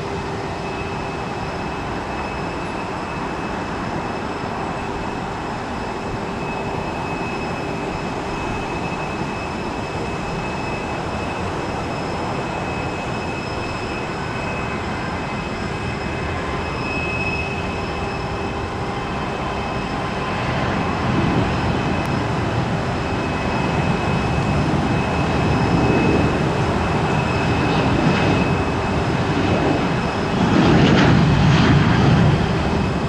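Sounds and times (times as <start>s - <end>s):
jet engines running: 0.0s - 33.0s.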